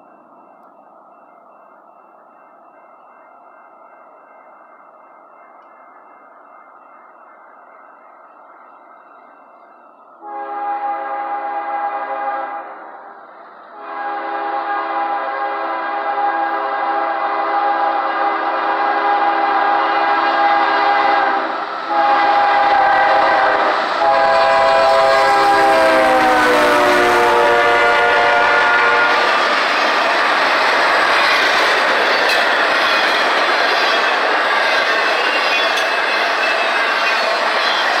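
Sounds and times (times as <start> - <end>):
train rumbling on rails: 0.0 - 38.0
locomotive air horn blasts: 10.2 - 12.8, 13.8 - 29.3.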